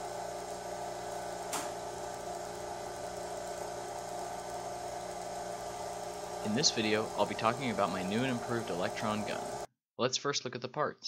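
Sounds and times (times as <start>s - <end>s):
vacuum pump humming: 0.0s - 9.7s
sharp click: 1.5s - 1.8s.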